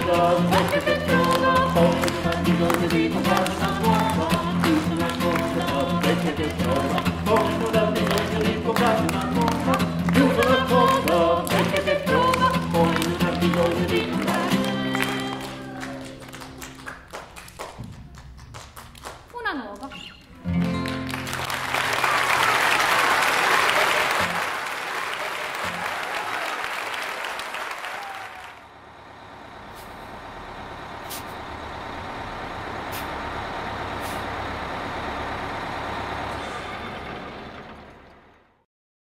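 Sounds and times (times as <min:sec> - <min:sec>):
audience applauding: 0:00.0 - 0:19.6, 0:20.4 - 0:28.7.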